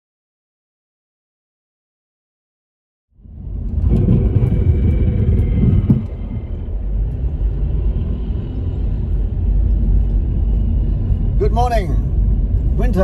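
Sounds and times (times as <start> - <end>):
car road and engine noise: 3.1 - 13.0.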